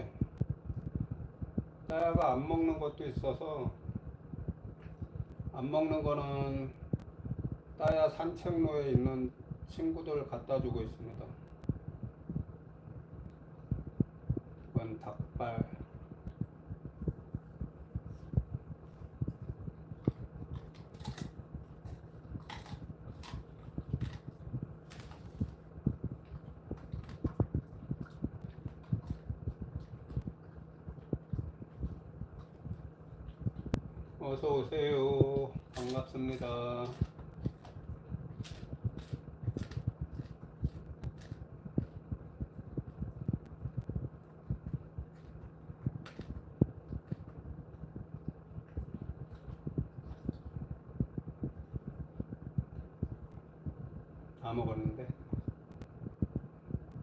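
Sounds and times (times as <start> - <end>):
steady low hum: 0.0 - 57.0
dog gnawing on chew treat: 17.9 - 33.9, 34.8 - 42.1, 44.6 - 50.8.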